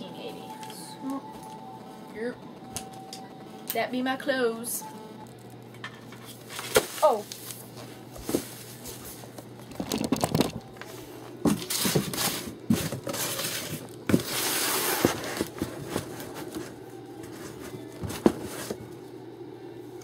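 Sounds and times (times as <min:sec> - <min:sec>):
plastic bag rustling: 0:06.3 - 0:18.8.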